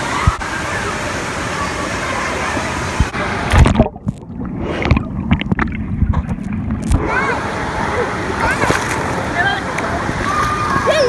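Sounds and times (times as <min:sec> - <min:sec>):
pool din: 0:00.0 - 0:11.0
splash: 0:03.0 - 0:07.3, 0:08.3 - 0:09.3
muffled underwater gurgling: 0:03.0 - 0:08.6.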